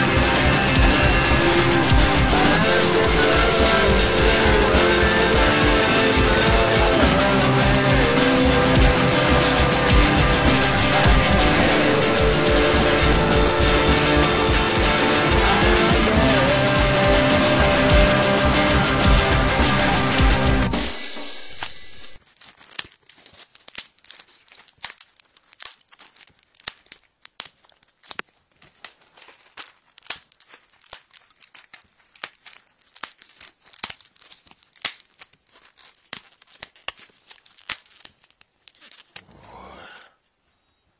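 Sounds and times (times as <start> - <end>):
music: 0.0 - 22.2
dense crackling and clicking: 0.0 - 39.2.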